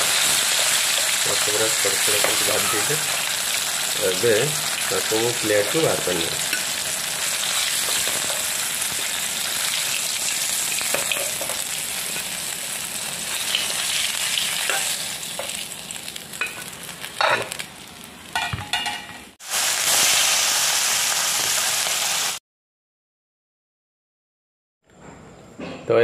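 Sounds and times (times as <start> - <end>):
fish sizzling in oil: 0.0 - 18.4, 19.2 - 22.4.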